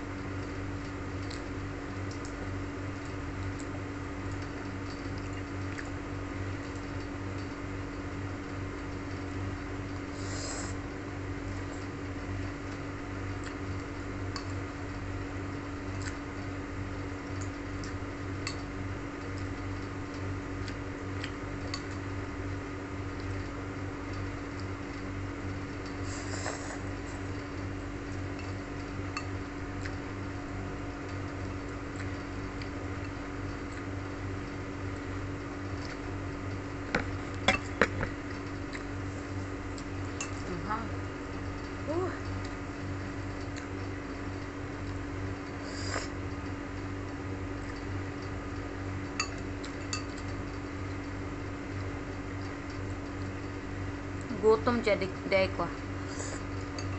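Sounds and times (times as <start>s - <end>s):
person slurping noodles: 10.1s - 10.8s, 26.0s - 27.0s, 45.6s - 46.2s.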